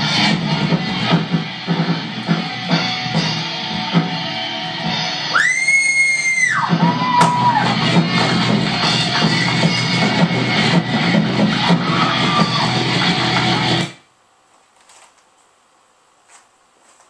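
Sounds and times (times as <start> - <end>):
rock band playing: 0.0 - 14.0.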